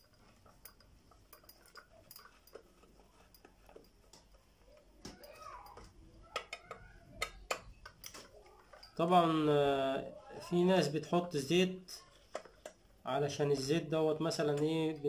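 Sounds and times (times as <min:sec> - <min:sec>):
screwdriver clicks and taps: 0:12.3 - 0:12.8.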